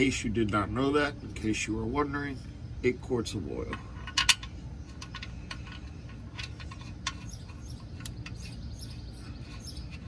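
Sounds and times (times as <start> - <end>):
steady low rumble: 0.0 - 10.0
high bird chirps: 7.2 - 10.0
sharp faint clicks: 8.0 - 8.5.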